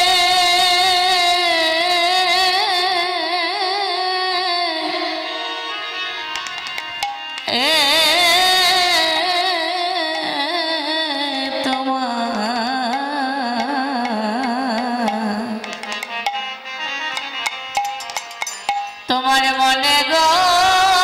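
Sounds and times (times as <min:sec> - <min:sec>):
woman singing: 0:00.0 - 0:05.8, 0:07.4 - 0:16.0, 0:19.0 - 0:21.0
harmonium: 0:00.0 - 0:21.0
drum strokes: 0:06.3 - 0:07.6, 0:12.9 - 0:16.6, 0:17.2 - 0:19.1.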